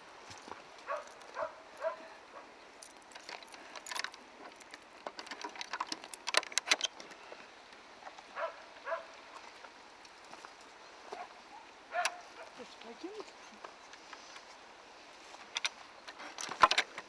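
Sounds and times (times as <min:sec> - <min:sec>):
keys jangling: 0:02.8 - 0:06.9.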